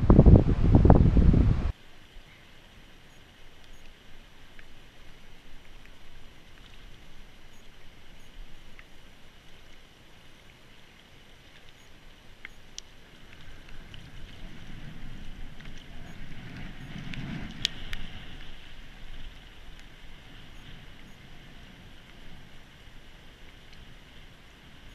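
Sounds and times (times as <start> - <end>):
wind rumble on microphone: 0.0 - 1.8, 13.0 - 24.9
faint clicks: 3.2 - 14.5, 15.5 - 18.6, 23.4 - 23.9.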